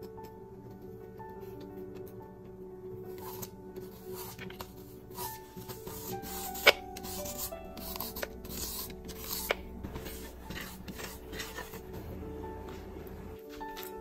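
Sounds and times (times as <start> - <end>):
peeler scraping zucchini: 3.2 - 12.0.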